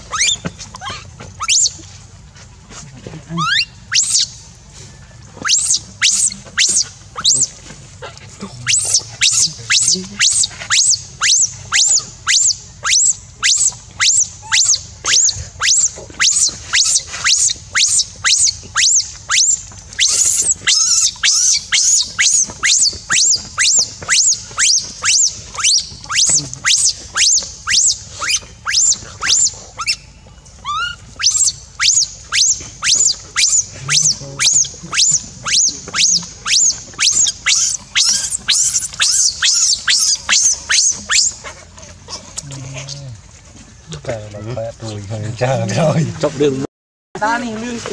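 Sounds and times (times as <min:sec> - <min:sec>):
baby macaque crying: 0:00.0 - 0:01.8, 0:03.4 - 0:04.3, 0:05.4 - 0:07.6, 0:08.5 - 0:30.0, 0:30.6 - 0:41.4.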